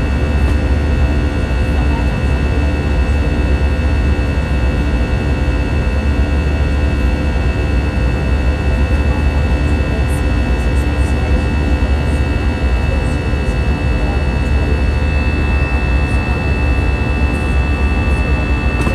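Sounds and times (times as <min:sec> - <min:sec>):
jet engine roar in cabin: 0:00.0 - 0:18.9
steady engine tones: 0:11.0 - 0:18.9
deep rumble: 0:12.1 - 0:18.9.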